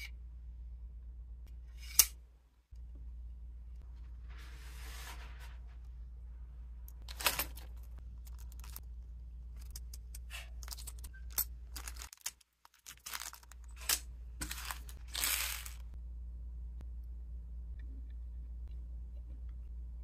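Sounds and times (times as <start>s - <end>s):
plastic bags crinkling: 11.7s - 15.9s.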